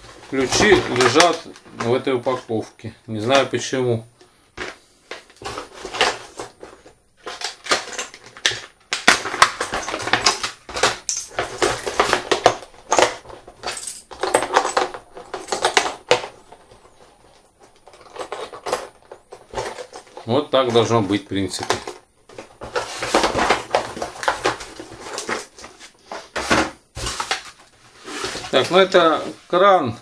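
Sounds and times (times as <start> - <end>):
packaging rustling: 0.0 - 2.4, 4.6 - 29.7
metal tools clinking: 11.0 - 11.8, 13.6 - 15.8.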